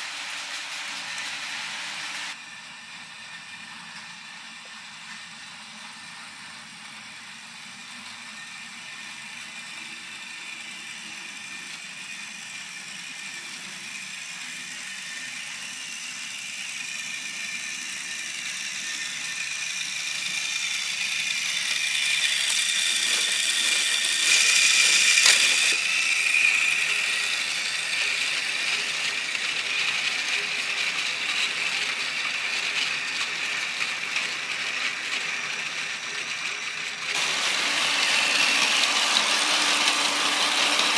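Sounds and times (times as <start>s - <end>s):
toy train motor whirring: 0.0s - 40.9s.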